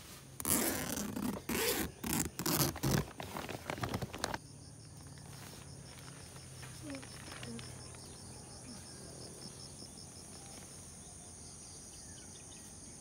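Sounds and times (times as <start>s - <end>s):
nylon fabric rustling: 0.0s - 4.4s
tent zipper pulled open: 0.0s - 4.4s
insects trilling: 0.4s - 13.0s.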